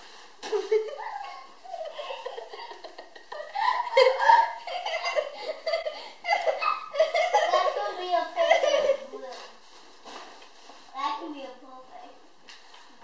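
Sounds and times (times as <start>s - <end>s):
girls giggling and laughing: 0.4s - 9.3s.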